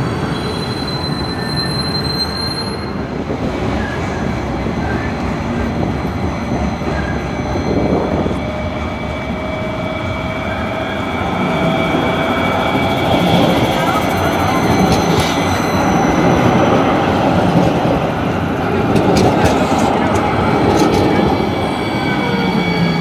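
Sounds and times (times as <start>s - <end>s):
approaching light rail hum: 0.0s - 23.0s
train rumble: 0.0s - 23.0s
high wheel squeal: 0.1s - 3.1s, 6.4s - 17.2s, 20.8s - 23.0s.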